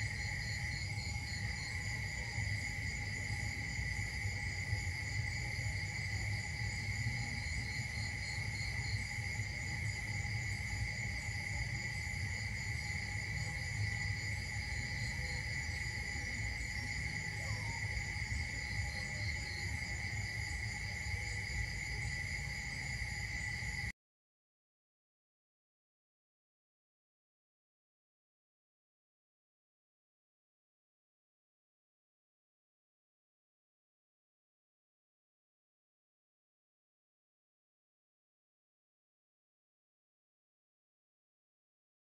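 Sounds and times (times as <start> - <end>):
high-pitched insect chorus: 0.0 - 23.9.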